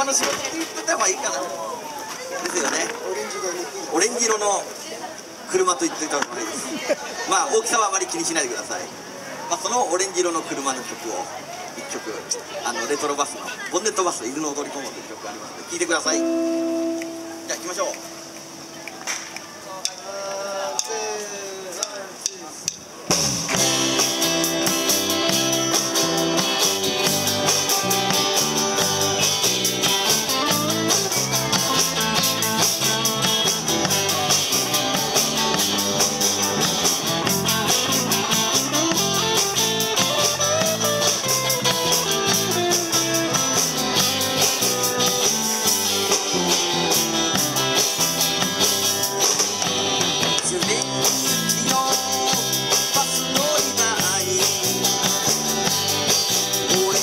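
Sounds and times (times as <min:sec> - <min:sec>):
rock and roll band playing: 0:16.0 - 0:20.0, 0:22.8 - 0:57.0
drum beat and cymbals: 0:21.8 - 0:57.0.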